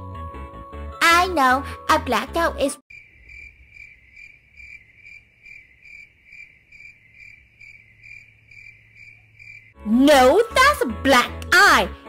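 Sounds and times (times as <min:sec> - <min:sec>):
cricket chirping: 0:02.9 - 0:09.8.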